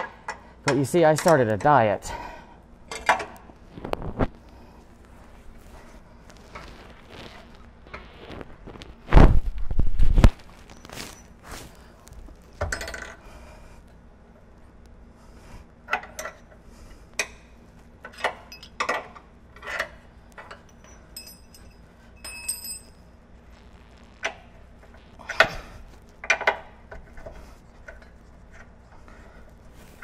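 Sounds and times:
metal tools clinking and knocking: 0:18.0 - 0:23.0.

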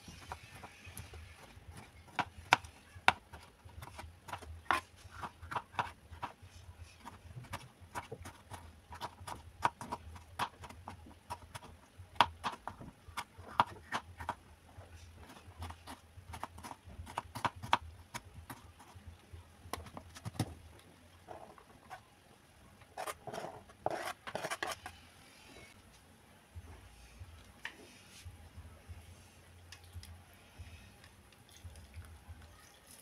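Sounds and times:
knife chopping on plastic board: 0:01.7 - 0:06.4, 0:07.0 - 0:14.4, 0:15.3 - 0:18.9.

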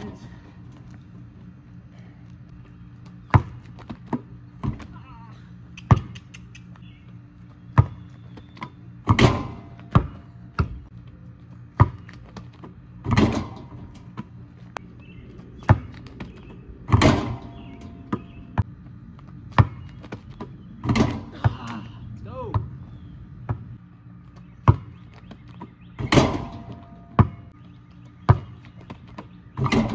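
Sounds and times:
steady low hum: 0:00.0 - 0:29.9
basketball bouncing on driveway: 0:02.5 - 0:21.8, 0:22.4 - 0:29.9
rim and backboard rattling: 0:09.0 - 0:10.8, 0:11.8 - 0:14.3, 0:15.6 - 0:18.6, 0:19.6 - 0:21.3, 0:25.6 - 0:27.5, 0:29.2 - 0:29.9.

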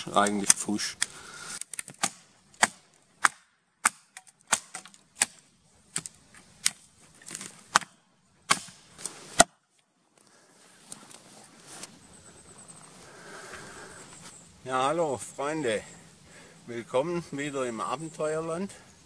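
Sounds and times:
hatchet chopping wood: 0:01.9 - 0:05.4, 0:07.7 - 0:08.8, 0:09.4 - 0:09.6.

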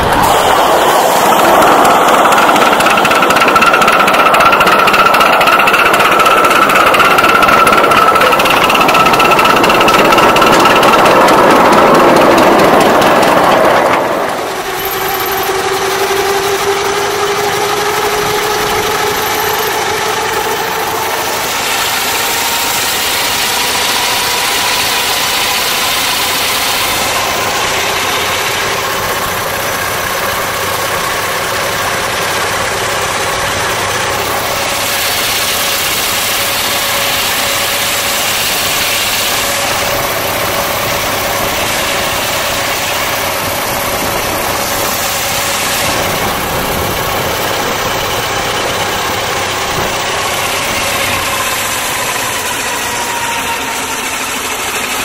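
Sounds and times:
steam hiss: 0:00.0 - 0:14.9, 0:33.4 - 0:53.6
steady high tone: 0:00.0 - 0:31.2
model steam engine running: 0:00.0 - 0:55.0.

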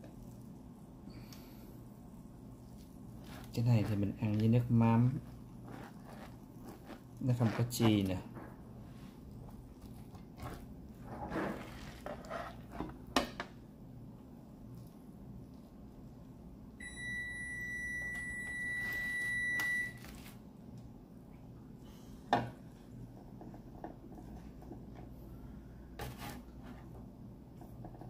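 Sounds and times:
spatula scraping metal baking sheet: 0:11.0 - 0:12.9
appliance beep: 0:16.8 - 0:20.1.

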